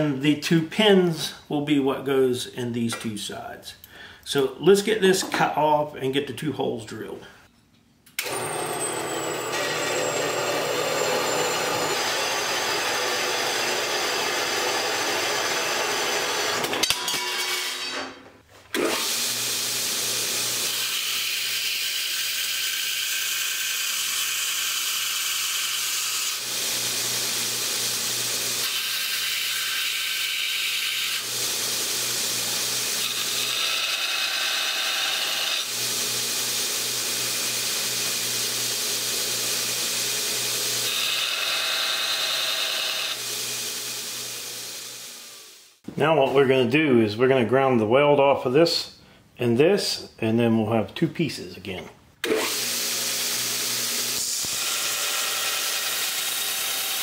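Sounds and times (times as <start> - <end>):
belt grinder motor hum: 8.2 - 16.7, 25.6 - 45.7, 52.2 - 57.0
bandsaw cutting steel: 8.2 - 18.2, 18.8 - 45.8, 52.2 - 57.0.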